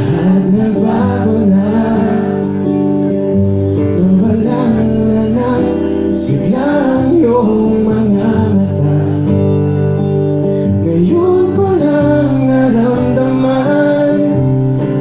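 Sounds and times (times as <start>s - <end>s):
man singing: 0.0s - 2.8s, 3.8s - 9.7s, 10.5s - 15.0s
acoustic guitar chords: 0.0s - 15.0s.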